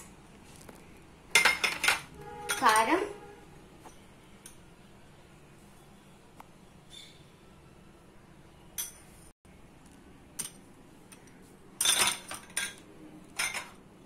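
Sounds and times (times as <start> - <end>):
glass and steel jar clinking: 13.4 - 13.8.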